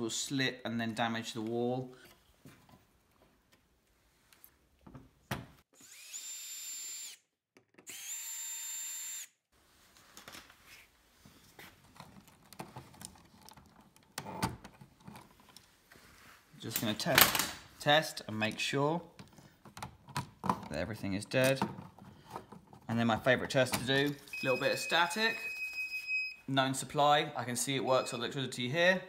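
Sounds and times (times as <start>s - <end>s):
cordless drill motor whine: 5.8s - 7.2s, 7.9s - 9.3s
faint clicks and handling noise: 9.9s - 17.4s.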